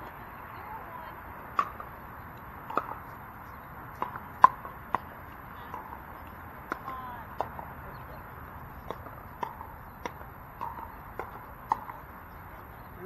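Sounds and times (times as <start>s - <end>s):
paddles striking ball: 2.6s - 12.8s.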